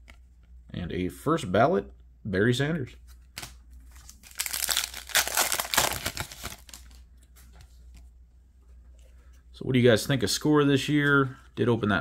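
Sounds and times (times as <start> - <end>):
plastic wrapper crinkling: 3.4 - 7.0.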